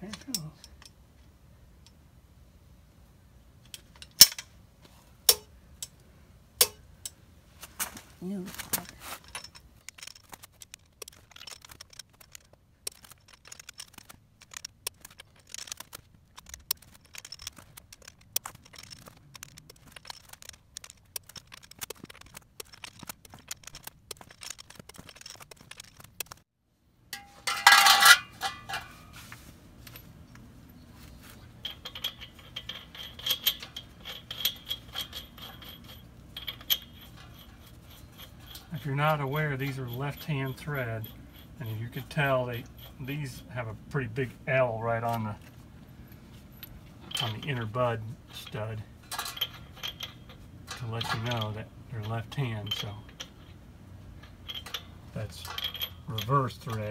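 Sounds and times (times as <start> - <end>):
metallic clinks of wrench and nuts: 9.2 - 26.4, 31.5 - 53.6, 54.2 - 56.9.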